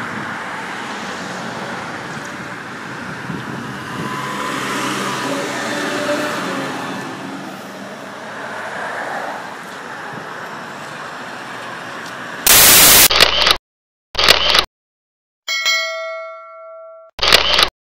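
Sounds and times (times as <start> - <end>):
street traffic: 0.0 - 13.6
loud static hiss: 12.5 - 13.1
ringing chime: 15.5 - 17.1.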